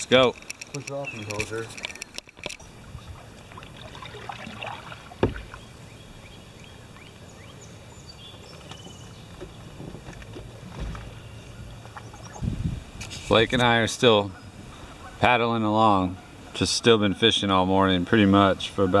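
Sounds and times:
paddle strokes in water: 0.4s - 13.4s.

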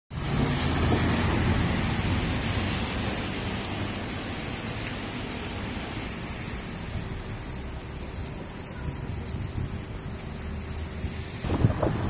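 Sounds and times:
rain on wet pavement: 0.1s - 12.0s
train rumbling over bridge: 0.2s - 3.8s.

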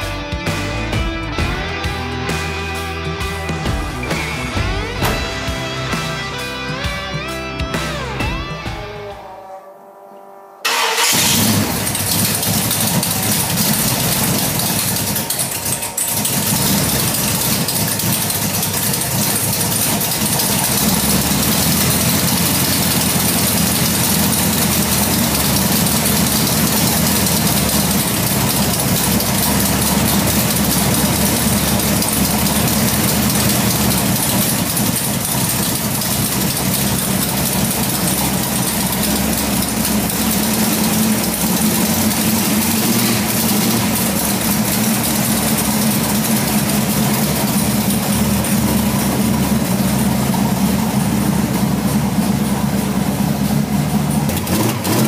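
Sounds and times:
car moving off: 10.6s - 55.0s
engine idling with exhaust leaks: 10.7s - 55.0s.

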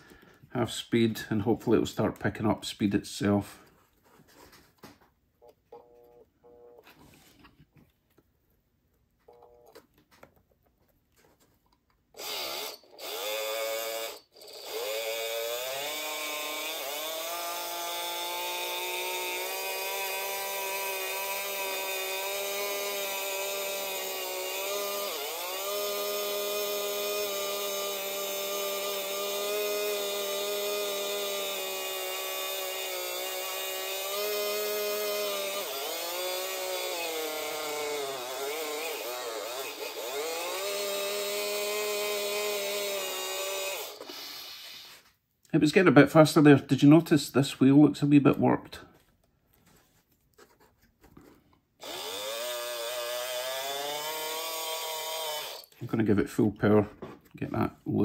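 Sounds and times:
small electric motor whining: 12.2s - 45.1s, 51.8s - 55.8s.

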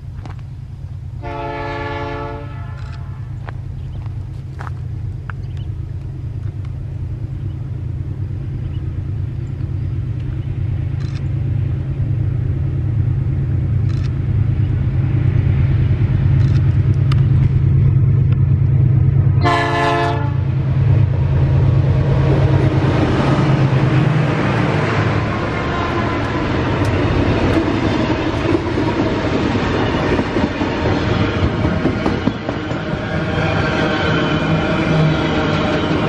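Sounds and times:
locomotive engine rumble: 0.0s - 36.0s
wheel and rail noise: 0.0s - 36.0s
train horn blast: 1.2s - 3.4s, 19.4s - 20.6s.

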